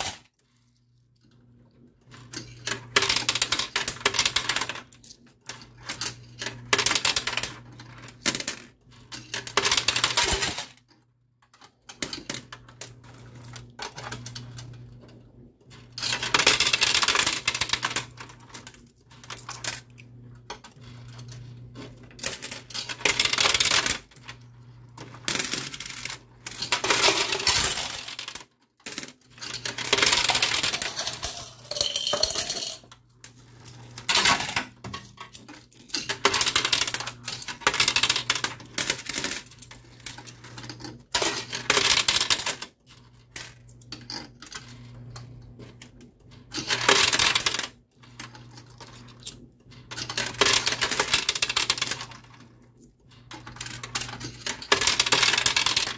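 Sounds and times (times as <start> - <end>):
coins clinking and clattering: 0.0 - 0.3, 2.2 - 4.9, 5.5 - 10.8, 15.7 - 20.0, 20.9 - 24.4, 25.0 - 44.9, 46.5 - 52.4, 53.2 - 55.9
low machine hum: 29.0 - 41.6.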